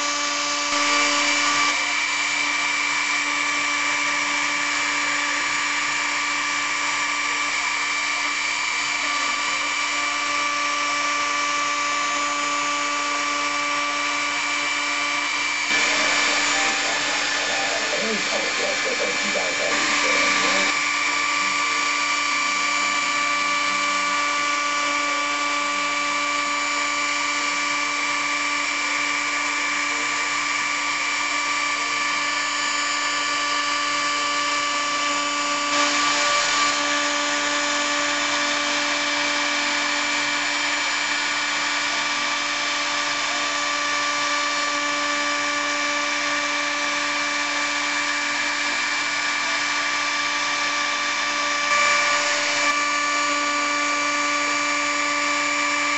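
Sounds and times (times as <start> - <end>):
router spindle whine: 0.0 - 55.9
bit milling wood hiss: 15.7 - 20.7.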